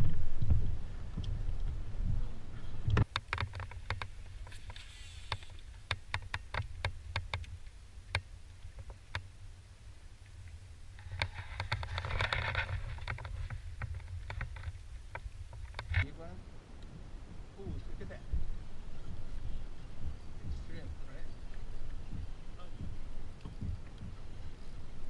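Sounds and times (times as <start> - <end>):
wind rumbling on microphone: 0.0 - 25.0
kayak gear clicks and knocks: 2.9 - 9.3, 10.2 - 16.1
brief hiss: 4.5 - 5.6.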